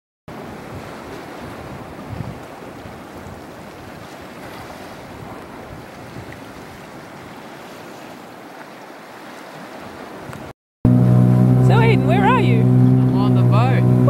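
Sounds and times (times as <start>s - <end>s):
wind buffeting microphone: 0.3s - 8.2s
small waves washing against rocks: 0.3s - 10.5s.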